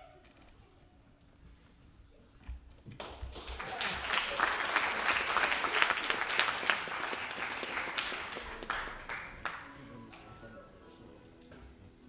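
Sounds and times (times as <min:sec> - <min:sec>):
audience applauding: 0:03.0 - 0:10.5.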